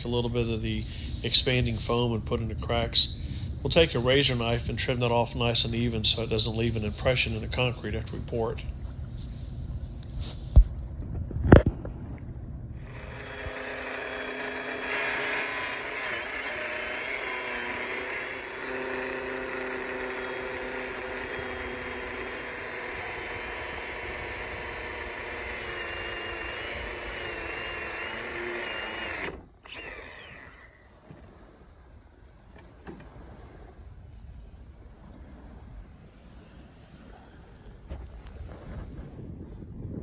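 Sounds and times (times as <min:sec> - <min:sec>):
angle grinder cutting steel: 0:12.8 - 0:30.9.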